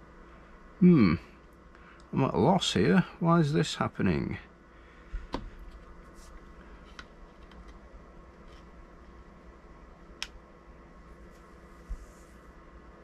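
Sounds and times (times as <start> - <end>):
faint electronics hum: 0.0 - 13.0
light clicks of test leads: 1.4 - 2.2.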